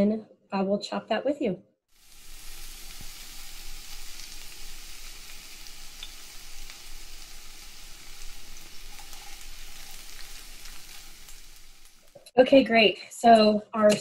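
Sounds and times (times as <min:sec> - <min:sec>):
bacon sizzling: 0:01.9 - 0:12.4.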